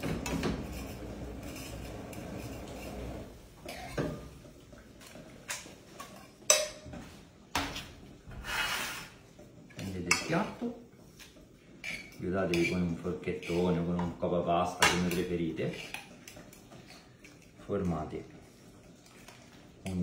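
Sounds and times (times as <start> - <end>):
fork and ladle scraping metal pan: 0.6 - 3.0, 8.4 - 9.2, 11.8 - 13.9.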